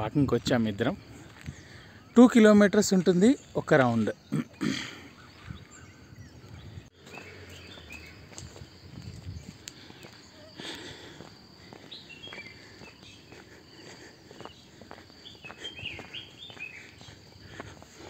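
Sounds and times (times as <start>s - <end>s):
small birds chirping: 0.0s - 18.0s
footsteps on a dirt path: 0.4s - 2.1s, 4.4s - 18.0s
high insect drone: 7.0s - 18.0s.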